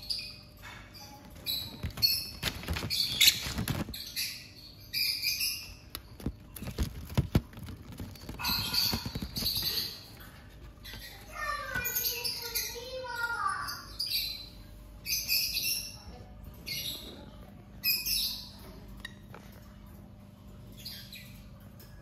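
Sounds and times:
birds chirping: 0.0s - 22.0s
bird pecking at paper: 6.0s - 10.0s.

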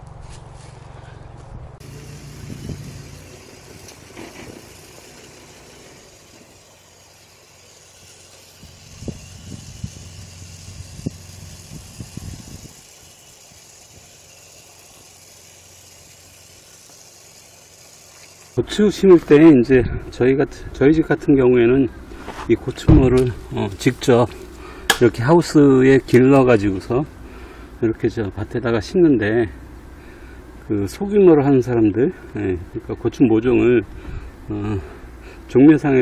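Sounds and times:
low engine hum: 0.0s - 36.0s
high hiss: 1.8s - 20.8s
short thuds: 22.2s - 23.5s.

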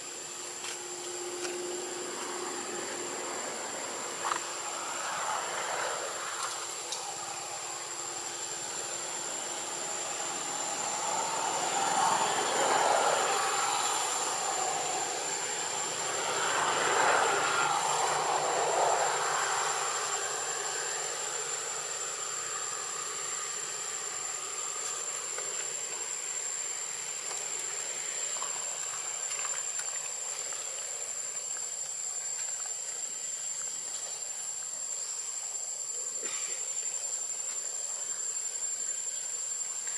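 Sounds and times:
high-pitched insect drone: 0.0s - 39.9s
hiss: 4.1s - 31.6s.

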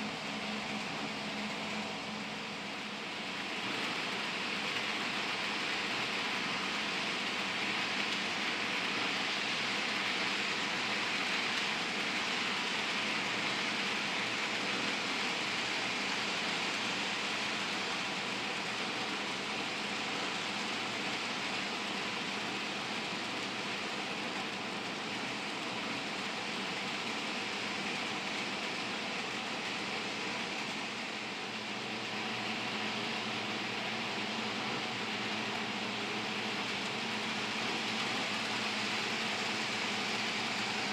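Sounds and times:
model train wheels rolling on rails: 0.0s - 40.9s.

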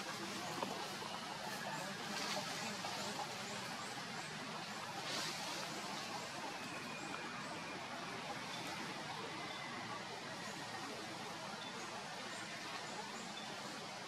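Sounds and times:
outdoor background hiss: 0.0s - 14.0s.

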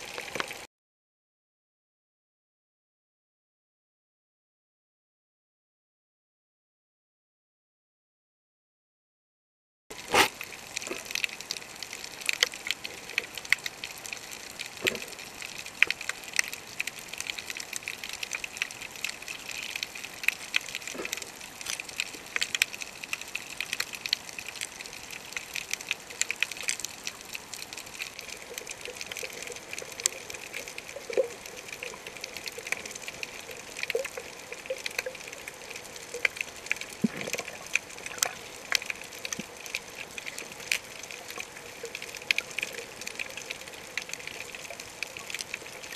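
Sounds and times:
steady underwater hiss: 9.9s - 45.9s
snapping shrimp crackle: 18.4s - 34.2s.

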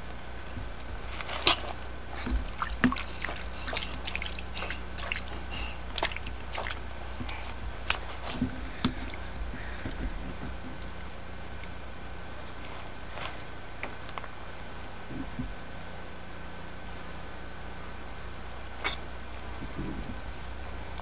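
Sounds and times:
hands squishing in wet mud: 1.0s - 9.9s.

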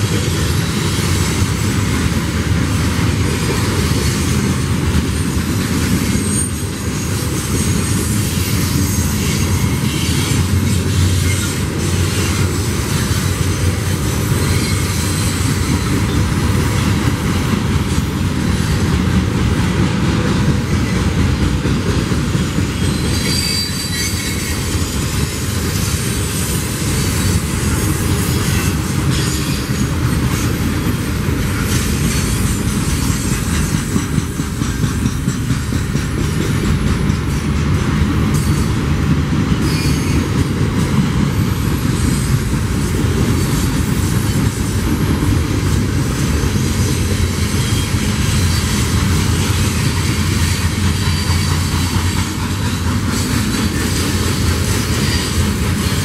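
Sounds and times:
freight train rumble: 0.0s - 56.0s
wheels clattering on rails: 0.0s - 56.0s
high wheel squeals: 6.0s - 16.3s, 22.6s - 30.6s, 39.6s - 40.3s, 46.5s - 54.1s.

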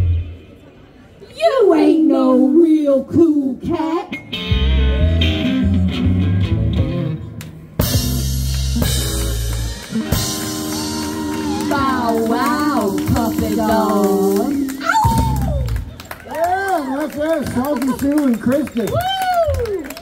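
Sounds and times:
rock and roll band playing: 4.1s - 16.2s.

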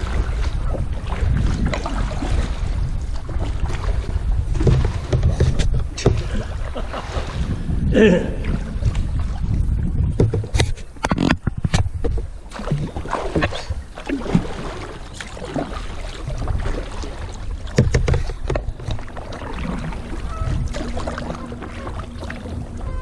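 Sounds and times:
paddle blades splashing: 0.0s - 23.0s
water lapping at plastic hull: 0.0s - 23.0s
sharp knocks: 17.7s - 19.0s.

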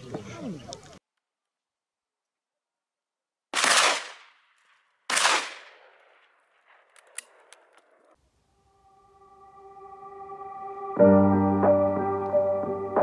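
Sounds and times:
gunshots with echo: 3.6s - 4.3s, 5.1s - 7.5s.

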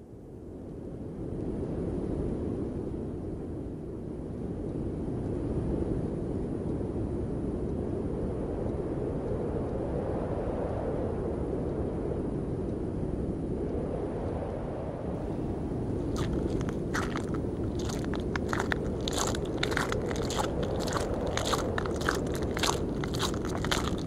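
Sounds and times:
low rushing wind: 0.2s - 24.0s.

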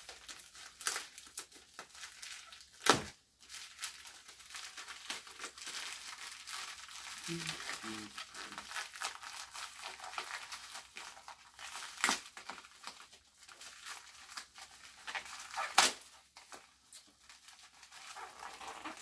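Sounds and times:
envelope crinkling and rustling: 0.0s - 19.0s
paper envelope ripping: 0.0s - 19.0s.

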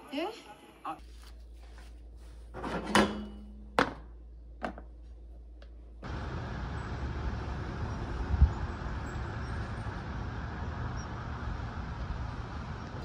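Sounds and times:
road traffic rumble: 5.8s - 13.0s.

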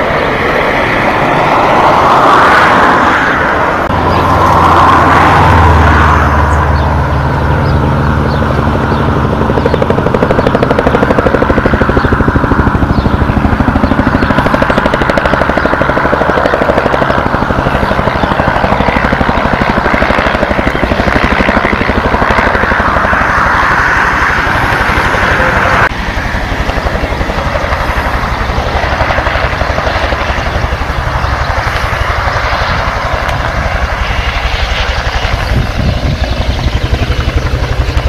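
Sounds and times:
helicopter flying overhead: 0.0s - 38.0s.

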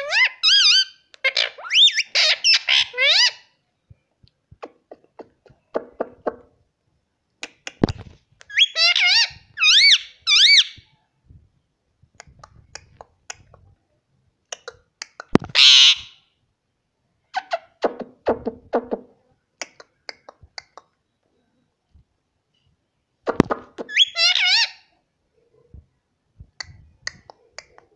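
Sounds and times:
parakeet squawk: 0.0s - 3.5s, 8.5s - 10.8s, 15.4s - 16.2s, 23.9s - 24.9s.

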